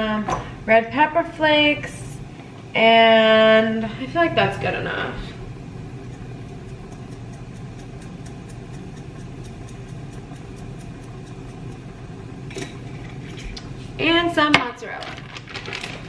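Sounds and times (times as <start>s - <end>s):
gas burners humming and hissing: 0.0s - 16.0s.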